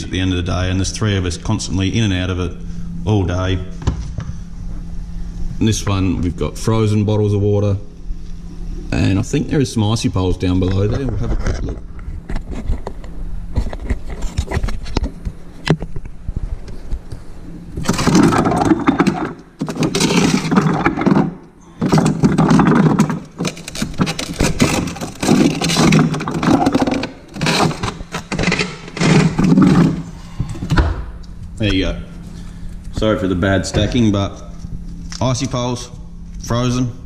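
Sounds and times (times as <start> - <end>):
frozen plastic bottles knocking: 17.8 - 30.0.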